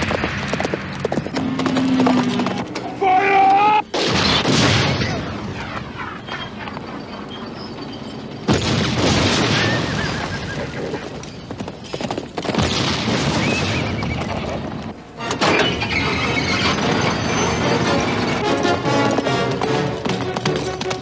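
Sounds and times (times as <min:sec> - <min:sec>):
horses whinnying: 0:01.3 - 0:03.9, 0:09.6 - 0:12.0
explosions with rumble: 0:03.9 - 0:05.7, 0:08.5 - 0:11.2, 0:12.4 - 0:14.9.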